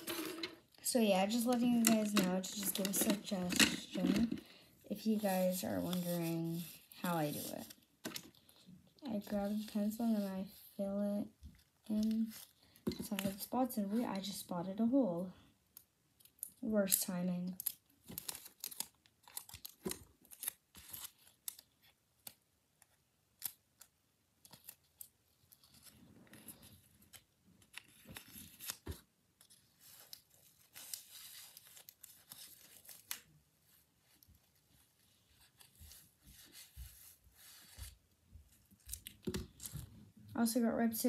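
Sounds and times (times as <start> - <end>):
paper crinkling and rustling: 1.3 - 10.5, 17.6 - 40.0.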